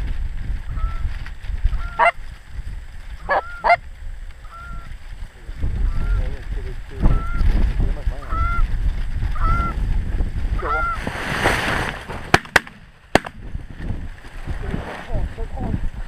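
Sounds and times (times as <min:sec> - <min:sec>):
rustle: 0:00.0 - 0:16.0
goose honks: 0:01.8 - 0:02.2, 0:03.2 - 0:03.8, 0:10.6 - 0:11.0
shotgun blasts: 0:12.3 - 0:13.4.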